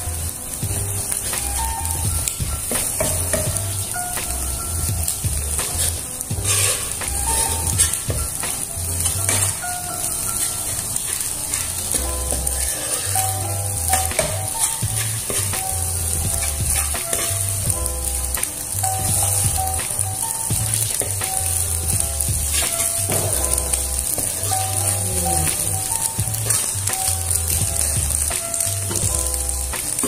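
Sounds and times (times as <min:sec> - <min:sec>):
background music: 0:00.0 - 0:30.0
eggs sizzling in oil: 0:00.0 - 0:30.0
metal spatula scraping pan: 0:05.6 - 0:08.3, 0:09.0 - 0:15.6.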